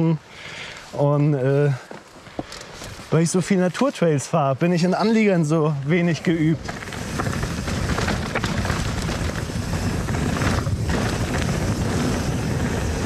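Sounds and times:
bike rattling: 4.9s - 13.0s
tyres crunching over rocky ground: 5.0s - 13.0s
wind rushing over microphone: 5.9s - 13.0s.

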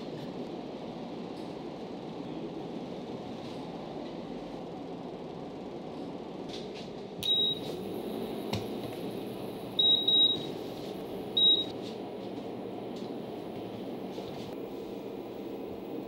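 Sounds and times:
room noise: 0.0s - 16.0s
cooktop control panel beeps: 7.2s - 7.8s, 9.8s - 10.6s, 11.3s - 11.8s.

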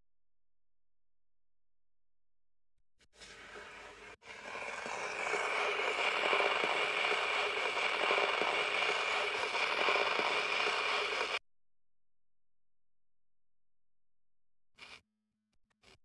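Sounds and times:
vinyl record crackle and hiss: 4.4s - 11.4s.

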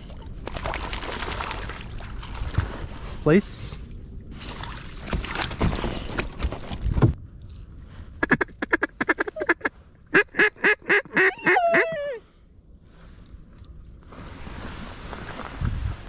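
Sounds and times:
water splashing: 0.0s - 2.7s, 4.3s - 6.4s.

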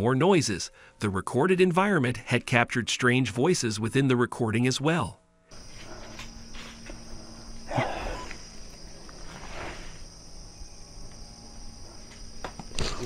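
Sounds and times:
night insects trilling: 0.0s - 13.0s
short hissing noises: 9.1s - 10.1s.

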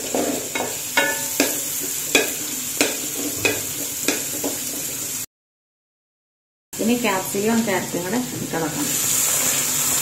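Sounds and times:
wooden spatula scraping pan: 0.0s - 5.1s
beans sizzling in hot oil: 0.0s - 5.3s, 7.0s - 10.0s.

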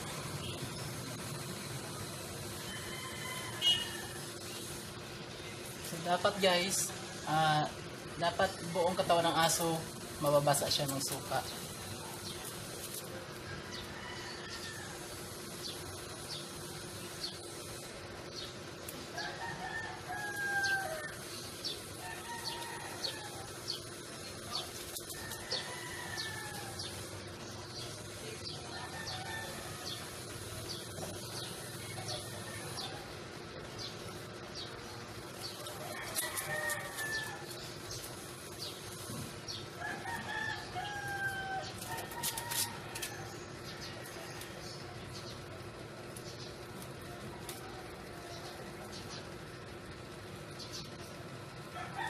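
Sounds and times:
rooster crowing: 2.5s - 4.5s, 13.4s - 15.3s, 19.1s - 23.8s, 24.5s - 27.1s, 28.7s - 30.2s, 31.5s - 33.2s, 35.5s - 37.7s, 39.7s - 44.8s, 51.6s - 52.0s
sharp clicks and scuffs: 41.8s - 43.2s.

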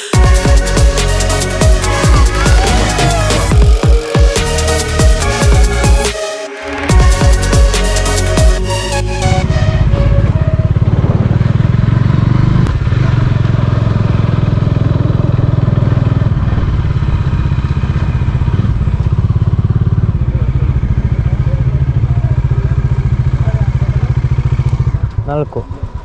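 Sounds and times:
motorcycle engine running: 0.0s - 6.1s, 6.9s - 26.0s.

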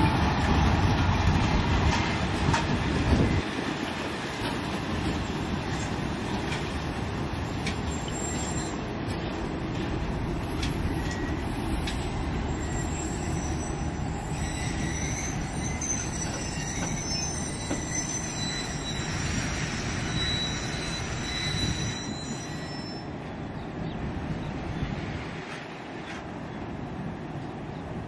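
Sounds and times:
train wheels rumbling on rails: 0.0s - 28.0s
high-pitched wheel squeal: 7.8s - 8.9s, 10.8s - 23.1s.

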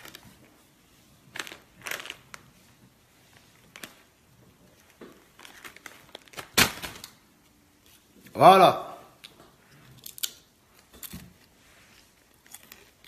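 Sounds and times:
chip bag crinkling: 1.2s - 2.6s, 3.3s - 7.2s, 12.1s - 13.0s.

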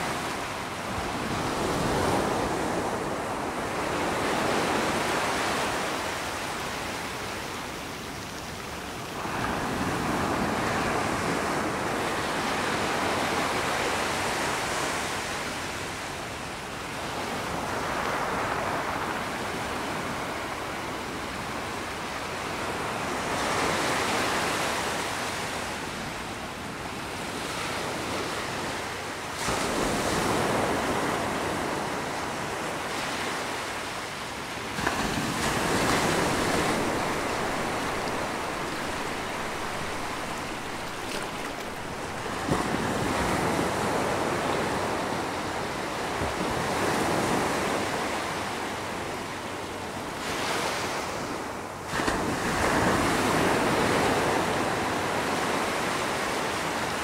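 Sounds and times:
ocean waves breaking: 34.6s - 45.0s.

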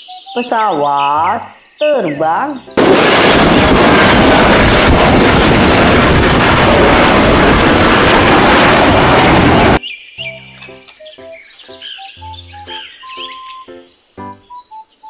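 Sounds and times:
jet engine rushing: 2.6s - 9.8s.

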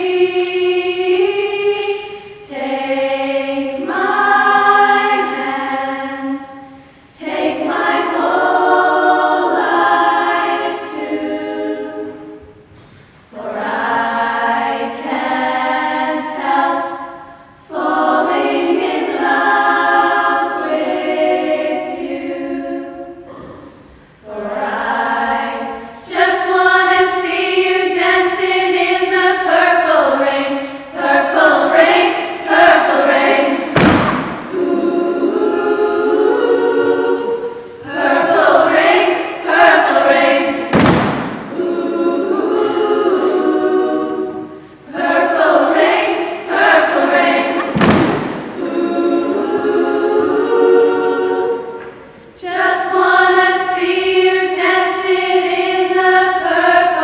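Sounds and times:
girls' choir singing: 0.0s - 57.0s
sharp thumps: 33.6s - 34.6s, 40.6s - 41.6s, 47.5s - 48.6s.

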